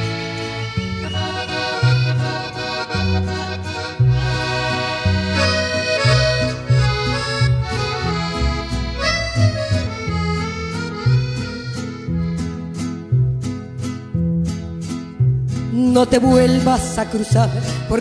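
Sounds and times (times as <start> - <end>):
stepping bass line: 0.0 - 13.4
accordion chords and melody: 0.0 - 18.0.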